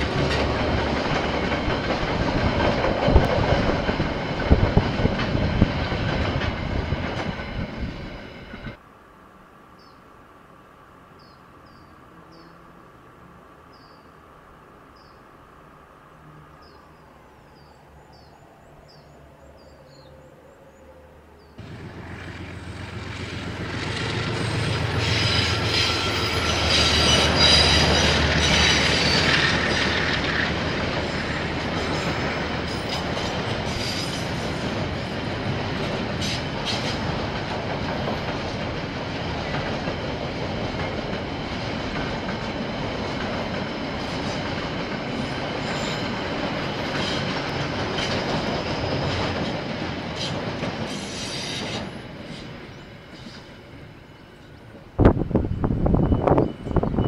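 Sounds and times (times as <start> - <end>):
locomotive engine hum: 14.3 - 50.8
wheels squealing: 23.2 - 34.6, 45.2 - 54.5.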